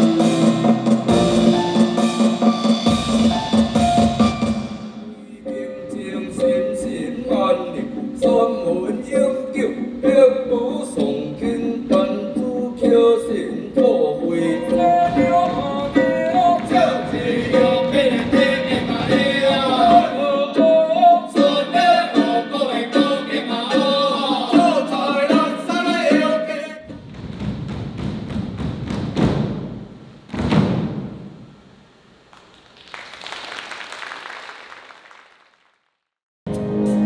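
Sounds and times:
several voices singing: 5.4 - 26.8.

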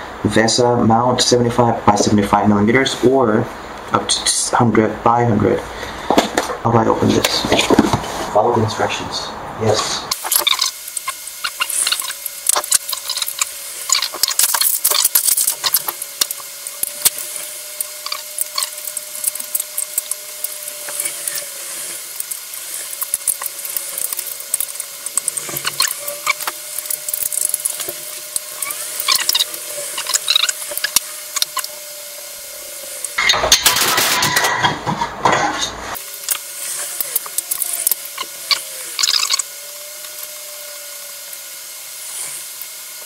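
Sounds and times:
metal monitor arm clicking: 10.2 - 31.8, 36.0 - 40.4.

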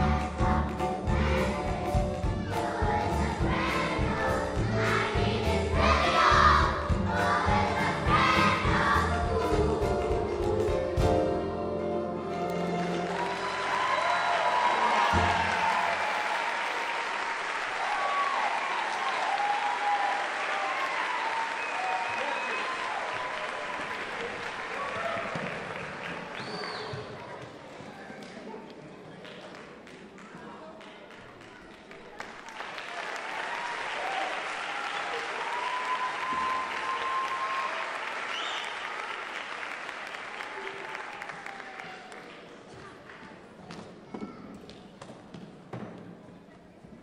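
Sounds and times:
audience applauding: 12.5 - 28.4, 29.2 - 43.3.

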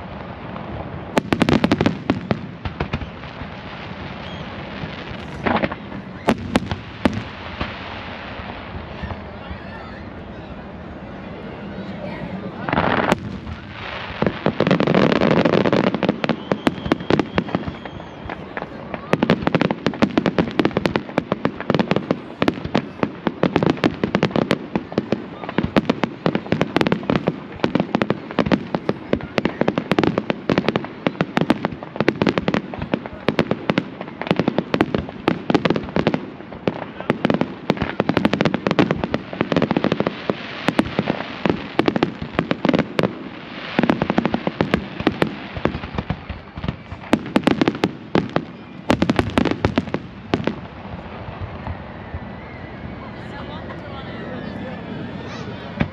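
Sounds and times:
fireworks bangs and crackling: 0.0 - 55.9.

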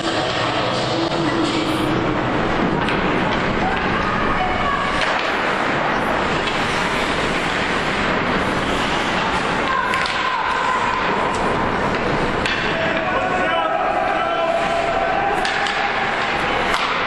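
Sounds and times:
crowd chatter in arena: 0.0 - 17.0
sticks and puck clicking on ice: 4.9 - 13.3, 14.5 - 17.0.

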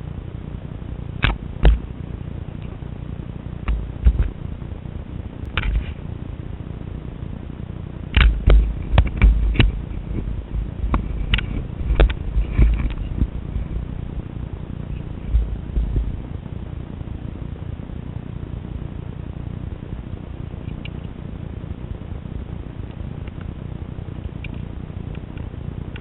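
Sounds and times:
low rumble: 0.0 - 26.0
camera handling knocks and rubs: 5.6 - 6.0, 8.2 - 13.4.

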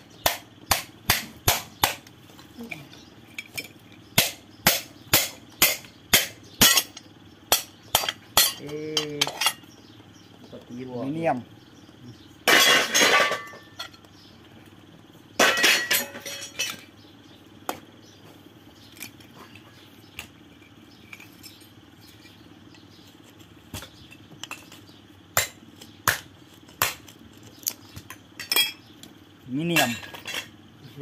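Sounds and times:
metal clanking and rattling: 12.4 - 14.0.

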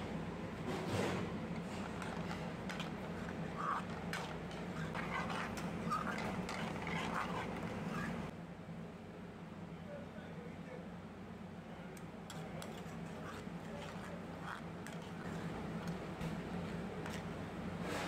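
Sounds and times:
steady low hum: 0.0 - 18.0
squeaky scrapes: 1.0 - 8.3, 12.3 - 15.6
ladle scraping metal pan: 1.5 - 8.3, 12.3 - 15.5.

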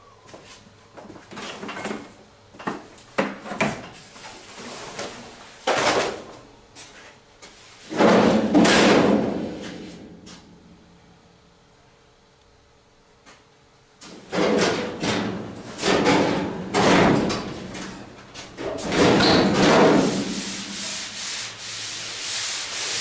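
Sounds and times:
sheet metal clanks and scrapes: 18.6 - 20.9.

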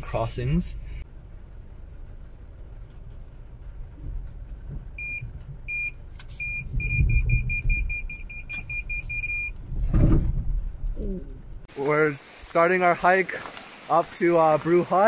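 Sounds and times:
engine rumble: 0.0 - 15.0
parking sensor beeps: 5.0 - 9.6
short thump: 9.7 - 11.0
tyres on gravel: 11.7 - 15.0.

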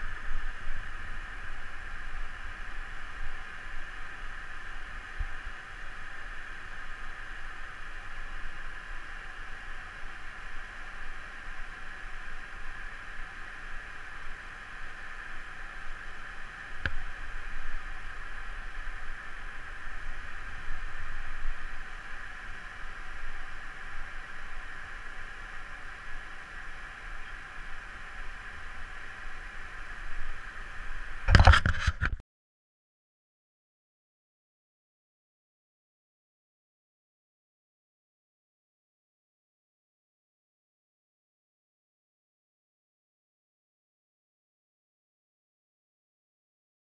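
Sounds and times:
steady rushing noise: 0.0 - 32.1
camera handling knocks and rubbing: 31.3 - 32.2.

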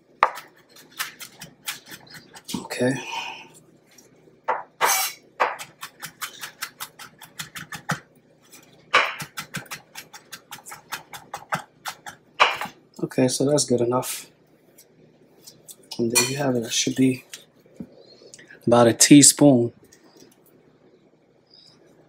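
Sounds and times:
knife chopping on wooden board: 0.2 - 2.6, 4.5 - 8.0, 8.9 - 12.8.

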